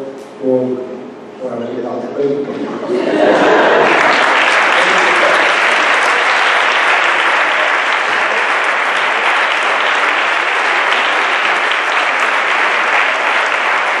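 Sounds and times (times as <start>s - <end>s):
audience applauding: 3.2s - 14.0s.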